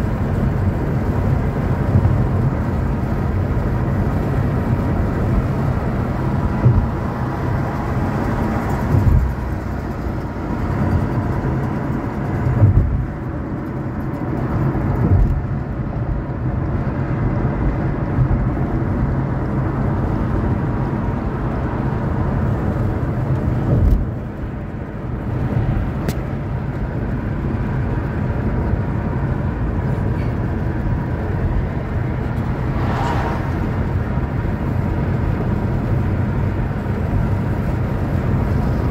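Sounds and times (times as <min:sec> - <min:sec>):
engine and tyre rumble: 0:00.0 - 0:38.9
low thumps: 0:06.4 - 0:07.6.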